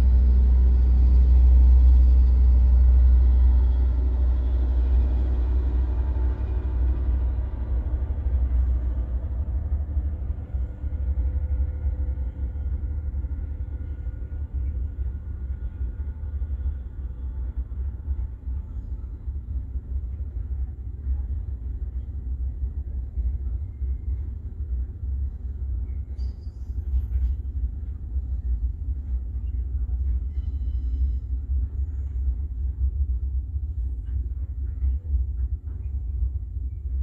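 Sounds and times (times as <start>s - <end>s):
freight train rumbling past: 0.0s - 22.4s
faint hum: 0.0s - 37.0s.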